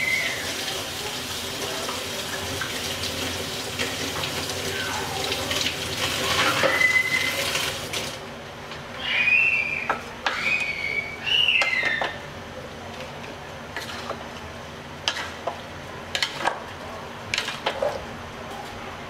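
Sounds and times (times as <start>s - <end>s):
high squealing notes: 9.0s - 12.2s
wooden spatula stirring in metal pot: 13.8s - 16.6s.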